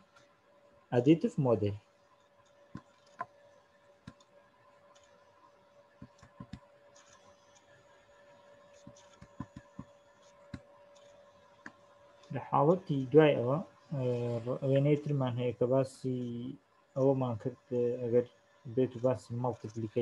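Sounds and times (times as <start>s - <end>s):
faint electrical hum: 0.0s - 20.0s
computer mouse clicks: 4.0s - 4.3s, 4.9s - 5.2s, 6.0s - 7.8s, 8.7s - 11.8s.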